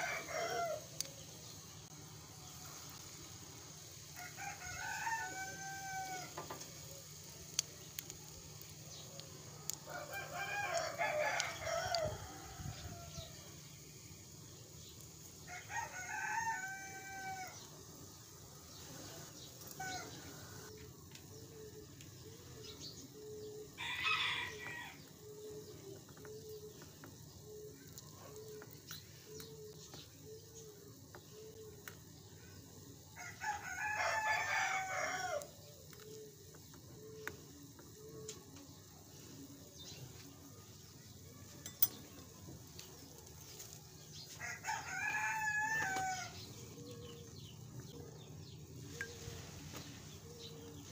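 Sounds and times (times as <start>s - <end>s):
rooster crowing: 0.0s - 1.0s, 4.2s - 6.5s, 9.8s - 13.4s, 15.5s - 17.6s, 23.8s - 25.1s, 33.2s - 35.5s, 44.3s - 46.4s
oil frying hiss: 0.0s - 47.9s, 48.6s - 50.9s.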